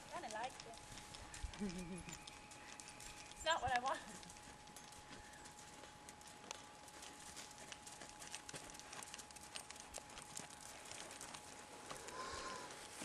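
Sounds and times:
faint horse hoofbeats on dirt: 0.0 - 13.0.

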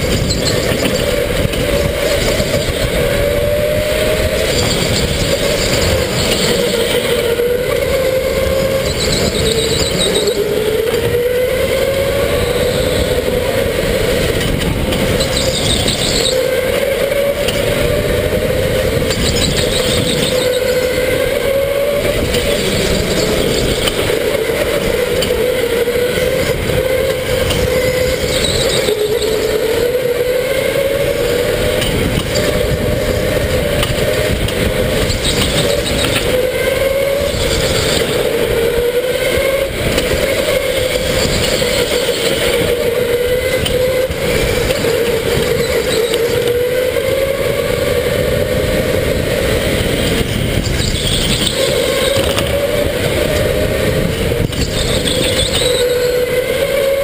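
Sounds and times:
tyre squeals: 0.0 - 11.3, 14.5 - 16.6, 19.0 - 30.1, 35.0 - 47.4, 50.6 - 57.0
electric kart motor whine: 0.0 - 57.0
tyre and wind rumble: 0.0 - 57.0.

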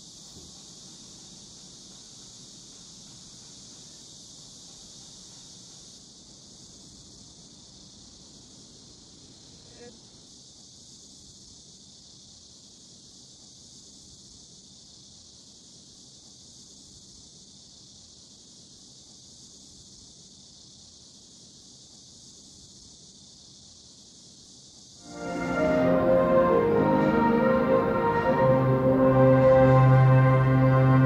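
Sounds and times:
high-pitched hiss: 0.0 - 31.0.

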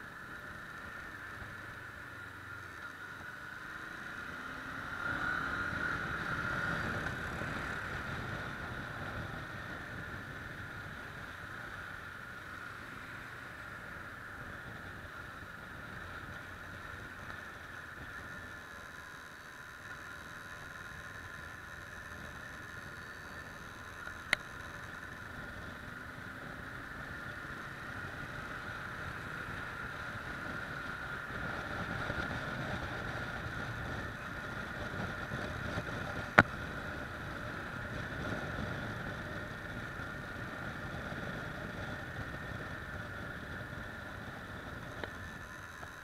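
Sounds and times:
motorcycle engine: 0.0 - 46.0
wind noise: 26.4 - 45.6.

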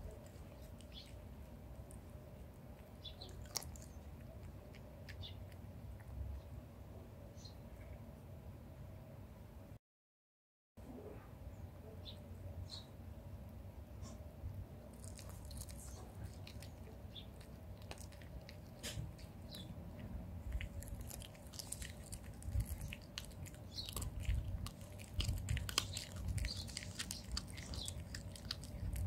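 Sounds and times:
cat chewing food: 0.0 - 6.5, 14.8 - 29.0.

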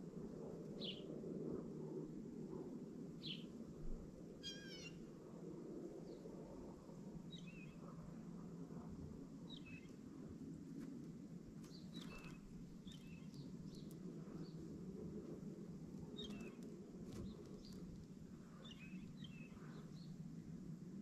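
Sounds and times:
faint low rumble: 0.0 - 21.0
songbirds chirping: 11.6 - 14.7, 16.0 - 20.2.

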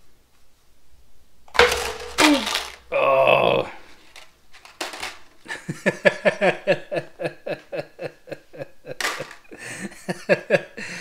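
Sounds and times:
man chuckling: 5.5 - 11.0.

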